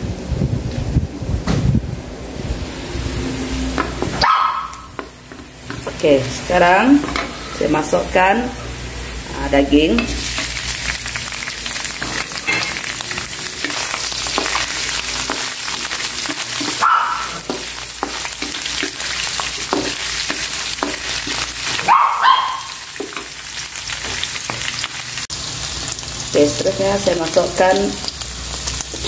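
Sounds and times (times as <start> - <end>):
beef sizzling in a wok: 2.6 - 29.0
wooden spatula scraping a pan: 11.9 - 21.8.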